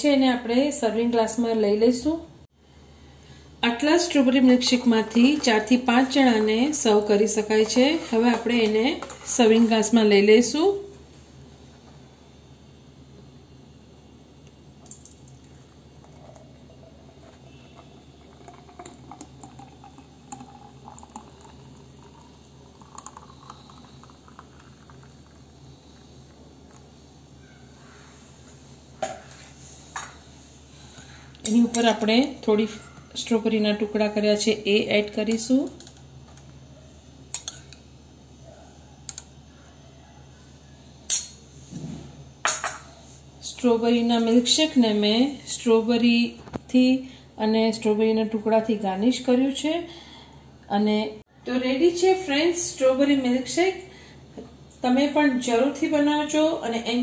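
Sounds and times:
low steady hum: 0:00.0 - 0:57.0
milkshake pouring into a glass: 0:14.8 - 0:27.0.

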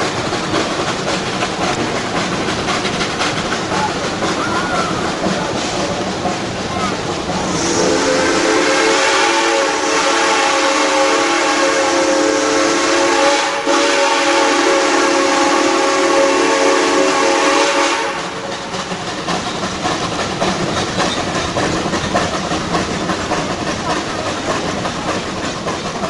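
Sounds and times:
train cars rumbling on track: 0:00.0 - 0:26.0
chime steam whistle: 0:07.5 - 0:18.4.

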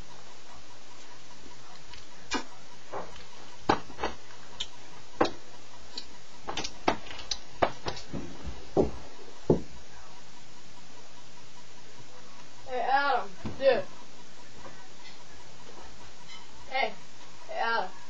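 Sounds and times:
dull thumps: 0:02.3 - 0:04.3, 0:06.5 - 0:09.8, 0:13.4 - 0:13.8.

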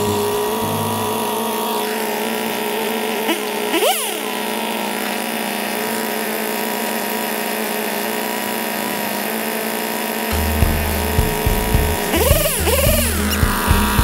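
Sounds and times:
engine running steadily: 0:00.0 - 0:14.0.

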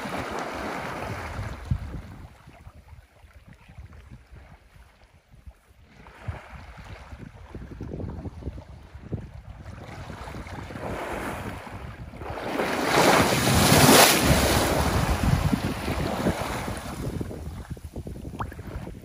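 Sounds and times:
elephant splashing in water: 0:12.3 - 0:17.1.

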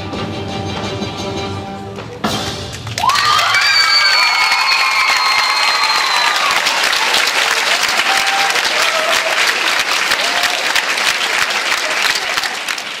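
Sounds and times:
audience applauding: 0:02.7 - 0:13.0
crowd calls: 0:03.0 - 0:13.0.

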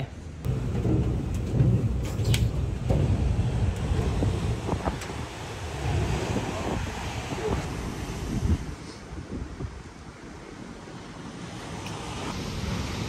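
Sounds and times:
wind buffeting microphone: 0:00.4 - 0:10.8.

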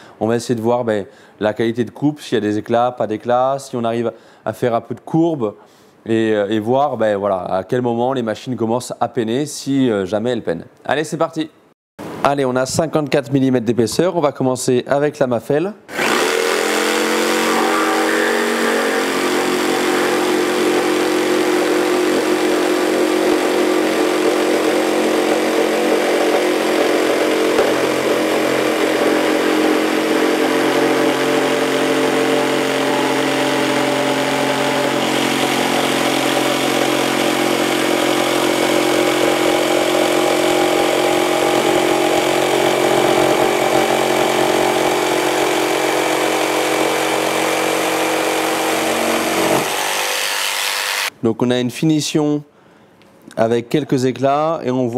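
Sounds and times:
jigsaw cutting wood: 0:15.9 - 0:51.1.

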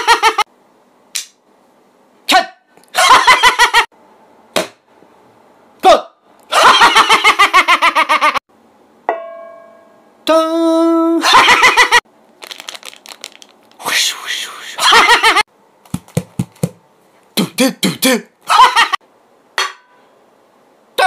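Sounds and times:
struck ringing tone: 0:09.1 - 0:10.1
plastic wrapping crinkling: 0:12.3 - 0:13.8
man imitating sounds vocally: 0:13.8 - 0:14.8, 0:17.3 - 0:18.4.

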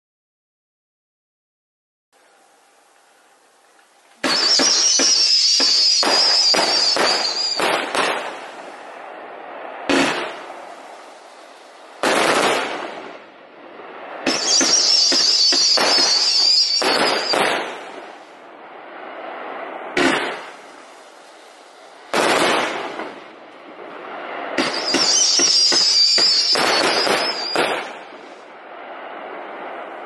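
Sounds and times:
high wavering whistle: 0:04.2 - 0:07.9, 0:14.2 - 0:17.7, 0:24.6 - 0:28.1
firework cake firing: 0:04.2 - 0:13.4, 0:14.0 - 0:30.0.

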